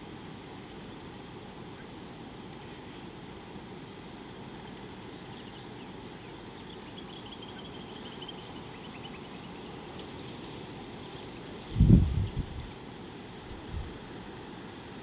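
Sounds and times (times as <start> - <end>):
bird chirping: 5.0 - 10.0
wind rumble on microphone: 11.6 - 12.8, 13.4 - 14.1.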